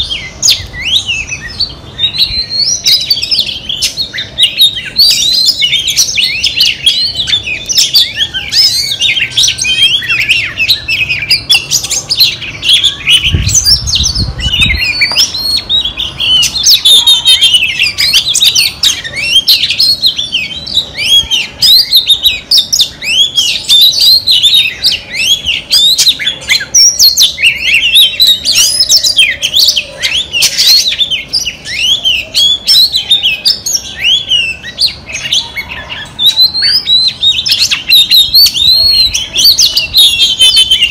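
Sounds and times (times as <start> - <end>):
bird singing chirps and whistles: 0.0 - 40.9.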